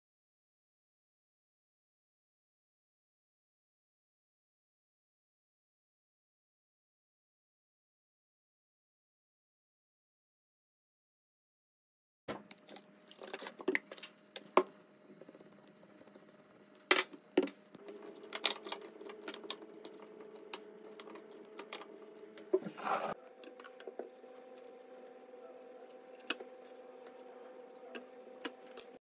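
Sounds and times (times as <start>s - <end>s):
wet squishing and rustling: 12.5s - 14.6s.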